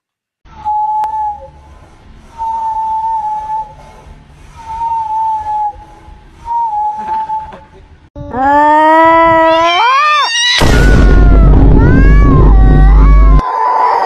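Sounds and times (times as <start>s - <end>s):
walrus whistling: 0.5s - 7.7s.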